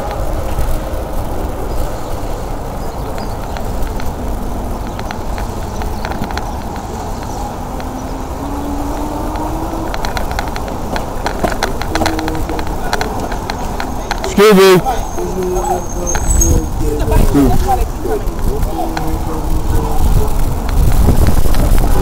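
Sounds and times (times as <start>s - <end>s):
road rumble: 0.0s - 22.0s
wind: 0.0s - 22.0s
light ticks: 3.1s - 16.3s.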